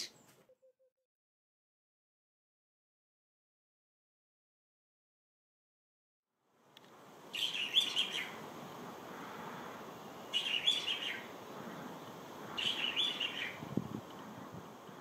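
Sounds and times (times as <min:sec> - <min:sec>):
bulbul calling: 0:00.0 - 0:00.4, 0:07.3 - 0:08.4, 0:10.3 - 0:11.4, 0:12.5 - 0:13.6.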